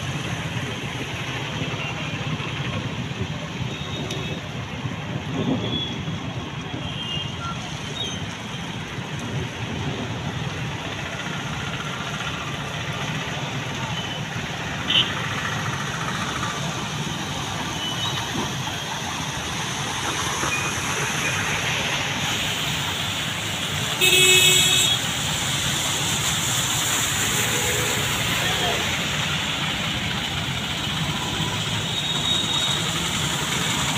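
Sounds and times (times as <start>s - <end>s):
traffic driving through water: 0.0s - 33.9s
vehicle horn honking: 24.0s - 25.0s.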